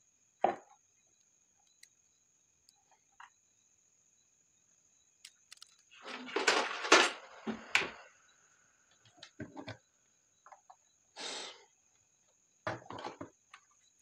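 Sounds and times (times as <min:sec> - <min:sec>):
small clicks: 0:01.2 - 0:02.0, 0:05.2 - 0:06.0
scraping and clattering on wood: 0:05.5 - 0:08.0.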